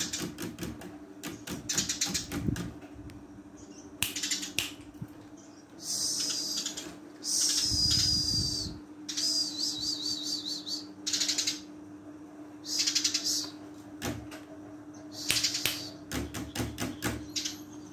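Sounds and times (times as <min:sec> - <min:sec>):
sparrow chirping: 0:05.4 - 0:11.7, 0:12.6 - 0:13.6, 0:14.9 - 0:17.9.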